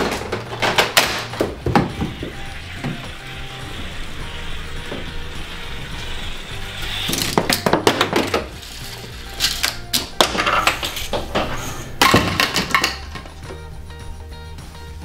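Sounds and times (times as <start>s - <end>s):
toy bowling pins clattering: 0.0s - 13.7s
background music: 0.0s - 15.0s
plastic toy parts clicking: 7.1s - 11.1s.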